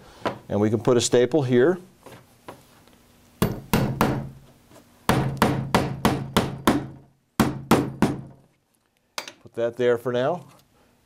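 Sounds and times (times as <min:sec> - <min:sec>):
hammer striking staple into wood: 0:03.4 - 0:04.3, 0:05.1 - 0:08.4.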